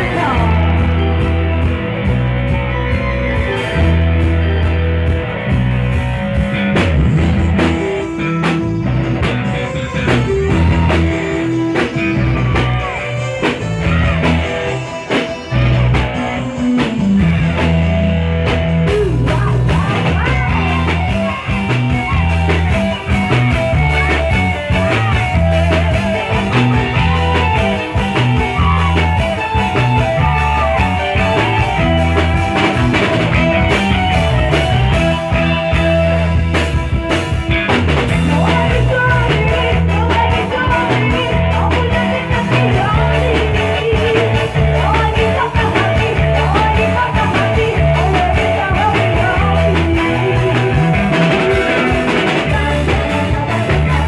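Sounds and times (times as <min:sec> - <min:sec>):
electric guitar: 0:00.0 - 0:54.0
keyboard: 0:00.0 - 0:54.0
repeating bass beat: 0:00.0 - 0:54.0
women singing: 0:38.2 - 0:51.1, 0:52.2 - 0:54.0.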